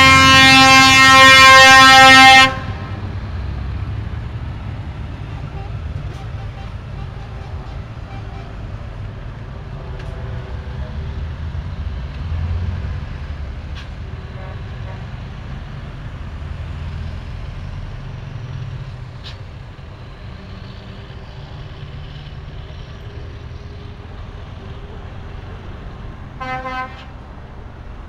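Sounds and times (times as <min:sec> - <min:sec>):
trucks driving past: 0:00.0 - 0:28.0.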